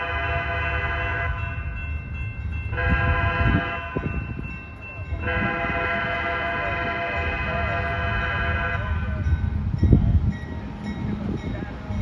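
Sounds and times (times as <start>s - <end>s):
locomotive air horn: 0.0s - 1.5s, 2.7s - 4.3s, 5.1s - 9.2s
train rumbling: 0.0s - 12.0s.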